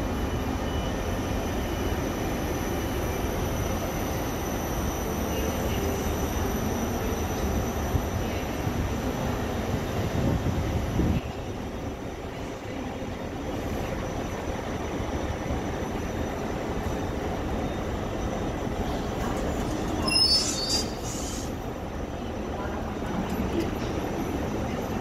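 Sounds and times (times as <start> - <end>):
train rumbling: 0.0 - 25.0
steel wheels squealing: 17.6 - 21.6.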